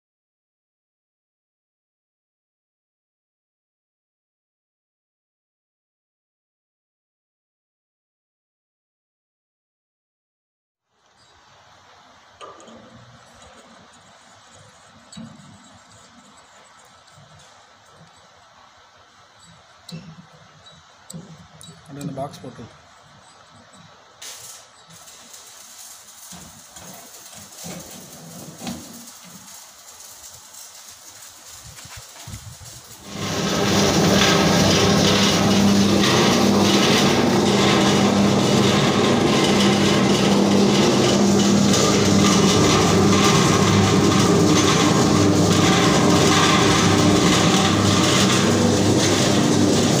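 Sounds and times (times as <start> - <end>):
steady hiss: 10.9 - 50.0
wet grinder motor hum and rattle: 12.4 - 22.5, 24.8 - 50.0.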